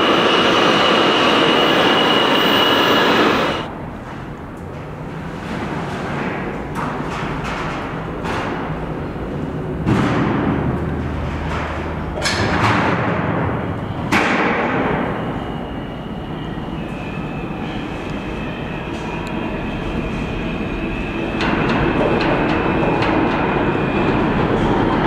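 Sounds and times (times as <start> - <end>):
steady high whine: 0.0 - 3.7, 15.0 - 25.0
subway train approaching: 0.0 - 25.0.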